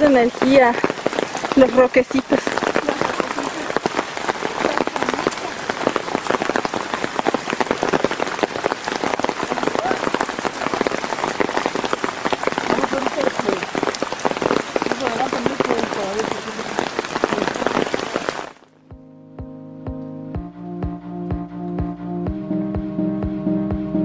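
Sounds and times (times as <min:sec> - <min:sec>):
rain falling: 0:00.0 - 0:18.9.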